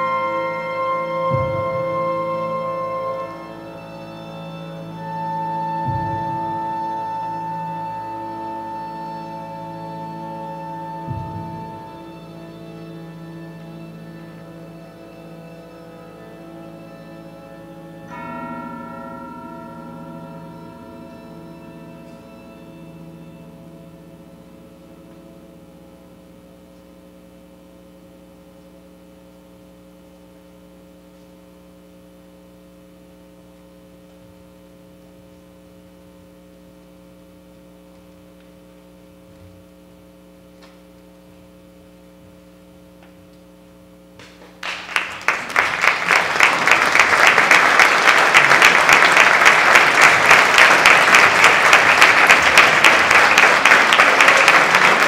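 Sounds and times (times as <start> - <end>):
chamber ensemble sustained chord: 0.0 - 30.7, 45.2 - 55.0
audience applause: 44.2 - 55.0.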